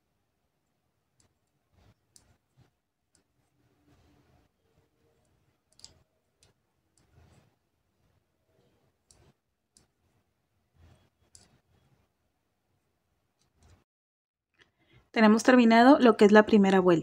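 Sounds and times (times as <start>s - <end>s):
crochet hook clicking: 5.7s - 7.3s.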